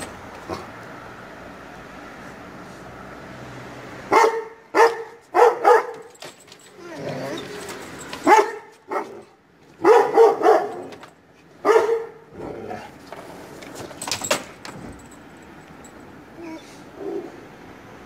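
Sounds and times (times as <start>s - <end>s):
dog barking: 4.1s - 6.1s, 8.2s - 11.0s, 11.6s - 12.3s.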